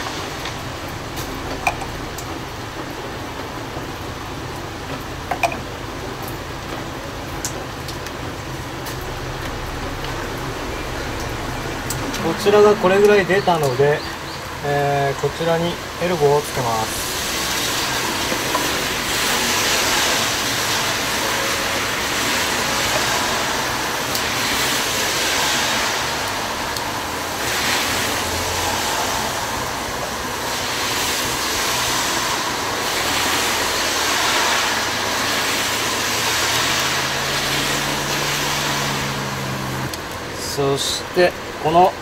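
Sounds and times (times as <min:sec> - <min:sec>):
road traffic rushing: 0:00.0 - 0:42.0.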